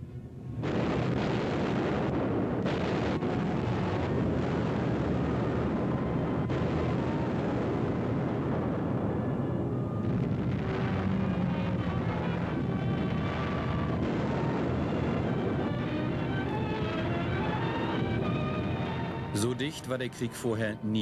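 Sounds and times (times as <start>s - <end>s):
bomb blasts rumbling: 0.0s - 21.0s
droning aircraft engine: 0.0s - 21.0s.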